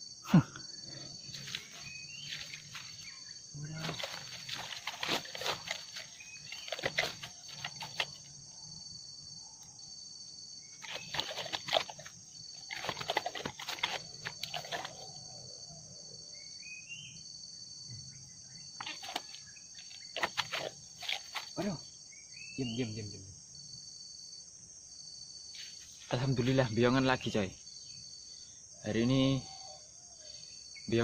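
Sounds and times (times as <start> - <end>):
high-pitched insect chorus: 0.0 - 31.0
sharp clicks and rustles: 3.8 - 8.3, 10.8 - 15.1.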